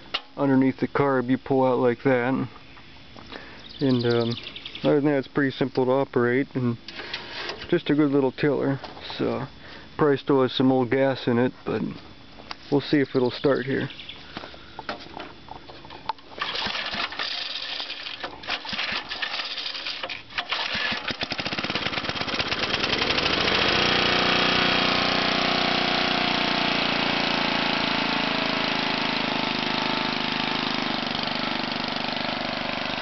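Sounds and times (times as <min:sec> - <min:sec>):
small engine sputtering and running: 0:16.3 - 0:33.0.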